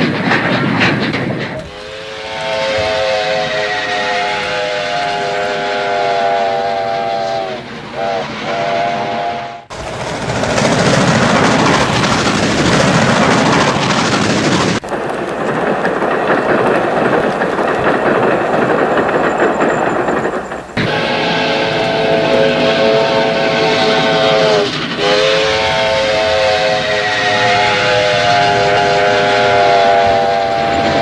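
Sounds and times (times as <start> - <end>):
train running noise: 0.0 - 31.0
steam locomotive chime whistle: 1.6 - 9.7, 19.3 - 31.0.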